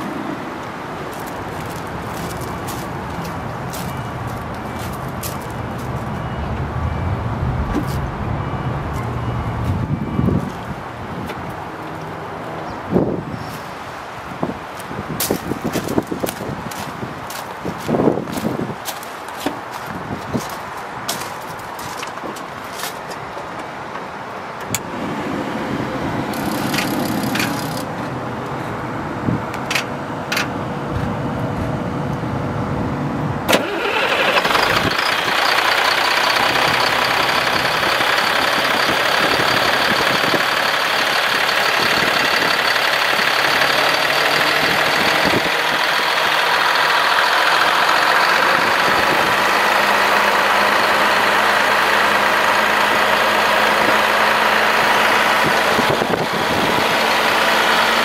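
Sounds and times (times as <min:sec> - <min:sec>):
diesel engine starting and idling: 0:00.0 - 0:11.2, 0:24.6 - 0:58.0
starter clicks: 0:26.4 - 0:27.9.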